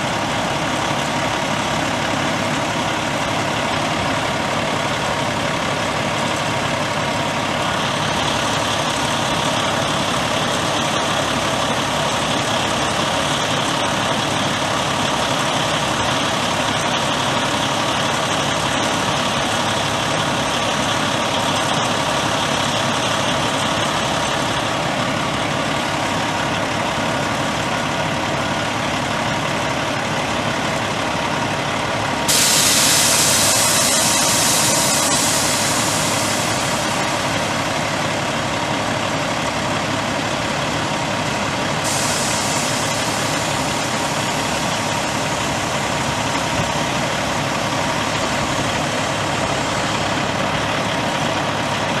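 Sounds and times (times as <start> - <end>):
diesel truck engine idling: 0.0 - 52.0
compressed air hissing: 32.3 - 37.7, 41.8 - 46.5.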